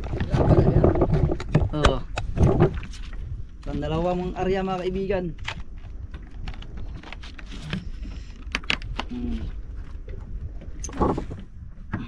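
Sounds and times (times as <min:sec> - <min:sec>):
wind and water rumble: 0:00.0 - 0:12.0
fishing gear clicks and knocks: 0:04.8 - 0:12.0.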